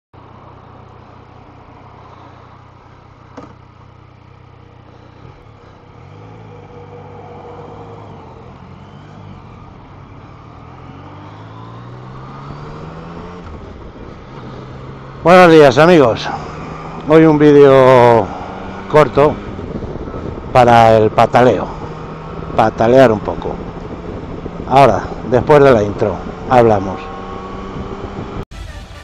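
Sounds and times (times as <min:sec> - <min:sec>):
motorcycle engine running: 0:00.2 - 0:28.4
wind rushing: 0:18.2 - 0:20.6.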